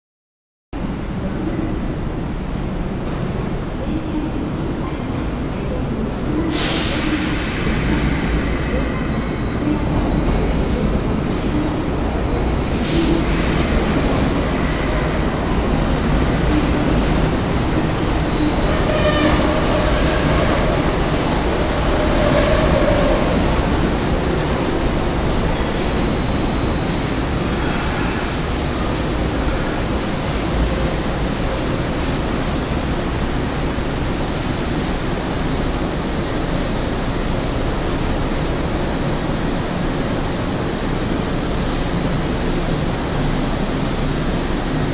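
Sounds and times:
train wheels rumbling on rail: 0.9s - 44.9s
train brakes squealing: 12.6s - 15.5s, 17.8s - 20.7s, 22.0s - 32.2s.

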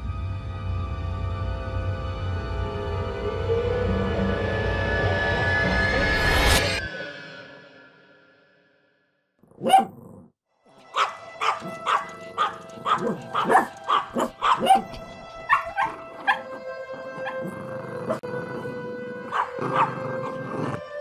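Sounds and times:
dog barking: 9.5s - 18.3s, 19.2s - 20.8s
music with held notes: 10.7s - 21.0s.

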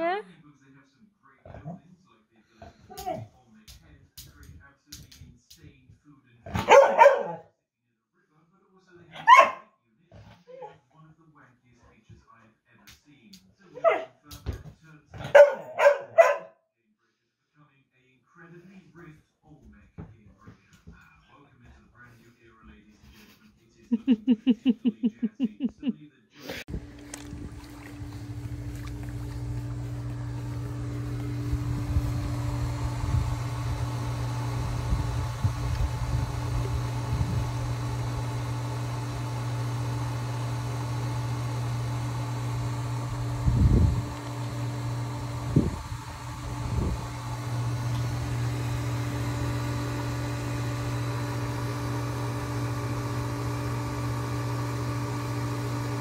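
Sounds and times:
pool pump motor humming: 26.7s - 56.0s.

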